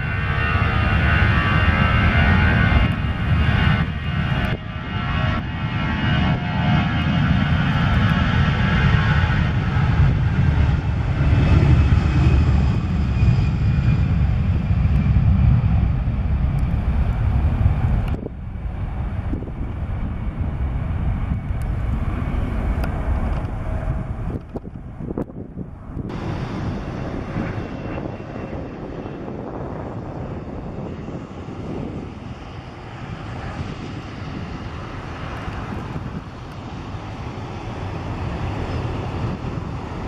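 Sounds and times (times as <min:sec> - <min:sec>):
airliner engine rumble: 0:00.0 - 0:40.0
engine whine: 0:00.0 - 0:40.0.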